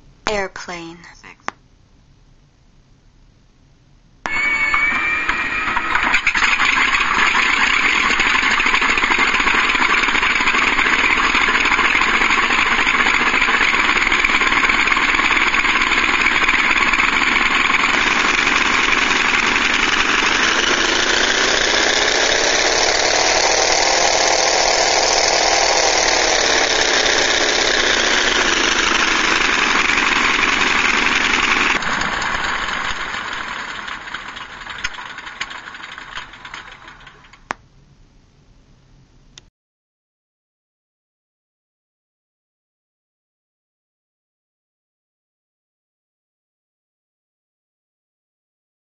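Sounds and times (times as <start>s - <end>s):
piston engine through loudspeakers: 4.3s - 37.6s.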